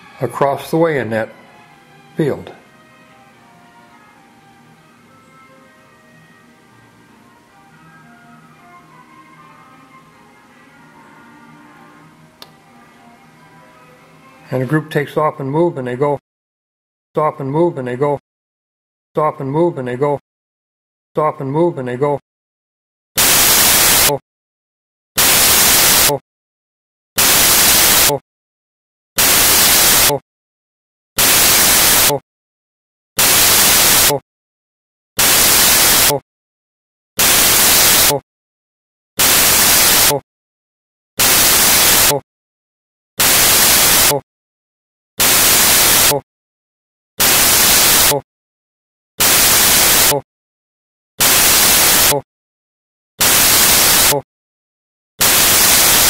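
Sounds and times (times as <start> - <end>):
bursts of static hiss: 23.2 - 24.2, 25.2 - 26.2, 27.2 - 28.2, 29.2 - 30.2, 31.2 - 32.2, 33.2 - 34.2, 35.2 - 36.2, 37.2 - 38.2, 39.2 - 40.2, 41.2 - 42.2, 43.2 - 44.2, 45.2 - 46.2, 47.2 - 48.2, 49.2 - 50.2, 51.2 - 52.2, 53.2 - 54.2, 55.2 - 56.0.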